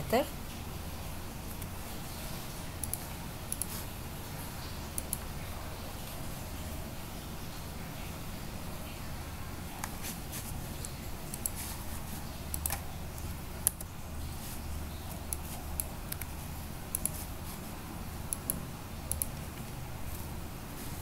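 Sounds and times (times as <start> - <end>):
steady low hum: 0.0 - 21.0
mouse and keyboard clicks: 12.5 - 12.9.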